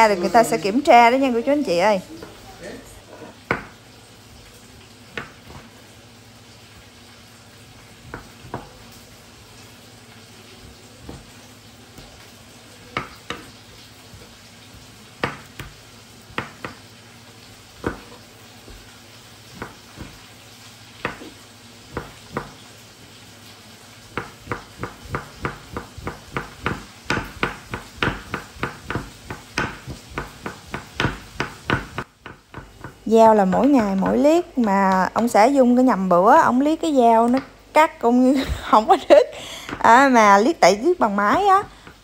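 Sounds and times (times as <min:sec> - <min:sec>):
knife chopping on cutting board: 0:03.5 - 0:03.8, 0:05.1 - 0:05.7, 0:08.0 - 0:08.8, 0:11.0 - 0:11.3, 0:12.9 - 0:14.3, 0:15.2 - 0:16.8, 0:17.8 - 0:18.9, 0:19.5 - 0:20.2, 0:21.0 - 0:22.6, 0:24.1 - 0:34.3.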